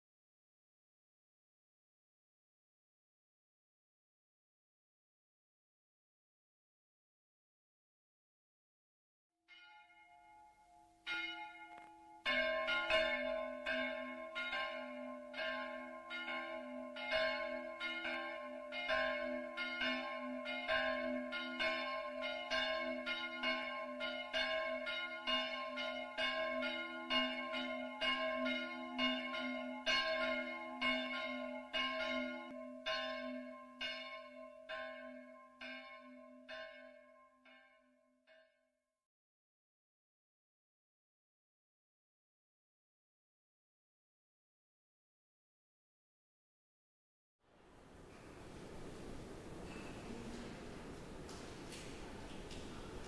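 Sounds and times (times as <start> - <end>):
church bells pealing: 9.5 - 38.4.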